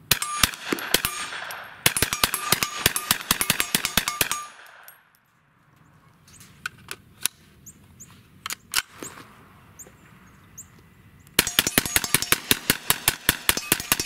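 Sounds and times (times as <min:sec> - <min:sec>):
rapid gunshots: 0:00.0 - 0:04.9, 0:11.4 - 0:14.0.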